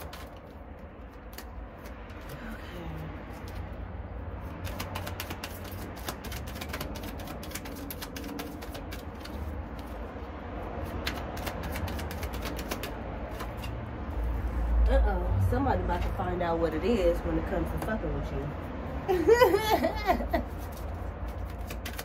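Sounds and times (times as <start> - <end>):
cards being shuffled: 0.0 - 2.6, 4.4 - 10.2, 10.8 - 14.6, 20.3 - 22.0.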